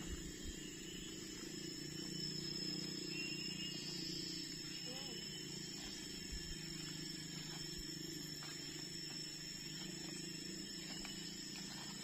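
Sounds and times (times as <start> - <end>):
high ringing tone: 0.0 - 12.0
insects buzzing: 0.0 - 12.0
low steady hum: 0.0 - 12.0
footsteps through undergrowth: 5.7 - 12.0.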